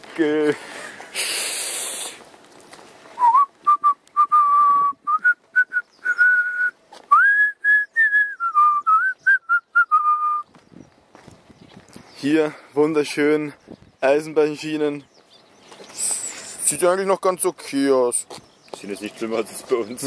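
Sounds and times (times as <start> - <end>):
person whistling a tune: 3.2 - 10.4.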